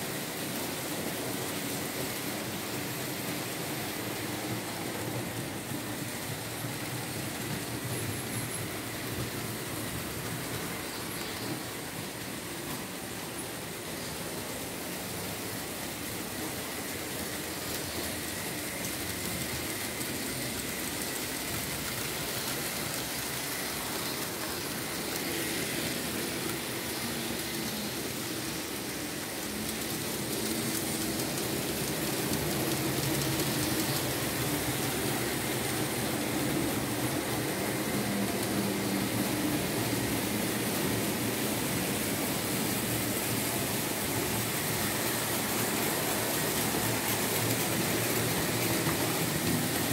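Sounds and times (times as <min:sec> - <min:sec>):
model train motors whirring: 0:00.0 - 0:49.9.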